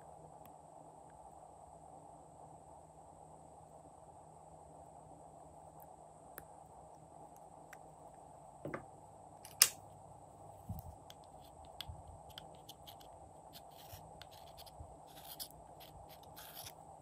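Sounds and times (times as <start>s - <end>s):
metal spatula scraping plastic jar: 12.4s - 16.7s.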